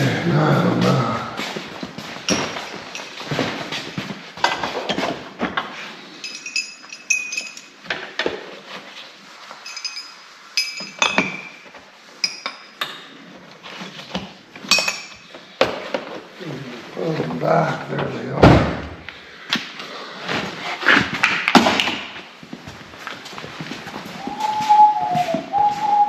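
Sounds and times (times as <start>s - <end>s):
metal tools clinking in drawer: 2.3s - 3.9s, 6.2s - 8.0s, 9.6s - 11.6s.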